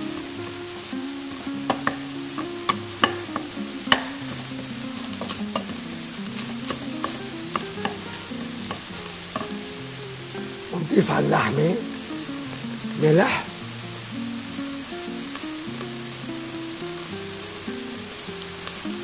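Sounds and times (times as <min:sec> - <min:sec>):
meat sizzling in a pot: 0:00.0 - 0:19.0
spoon knocking and scraping a pot: 0:01.7 - 0:04.4, 0:05.2 - 0:09.6.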